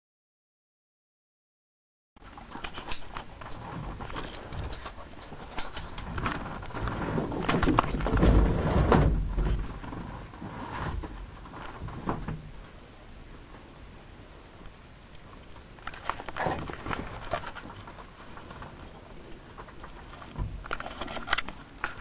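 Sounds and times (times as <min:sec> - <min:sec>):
camera handling rustling and bumping: 0:15.8 - 0:18.6, 0:19.6 - 0:22.0.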